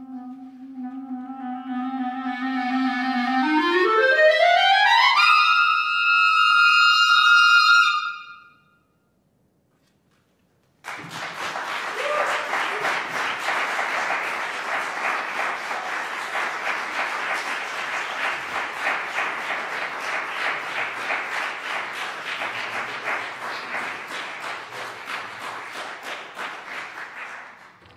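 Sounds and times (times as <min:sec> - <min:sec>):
audience applauding: 0:10.8 - 0:27.9.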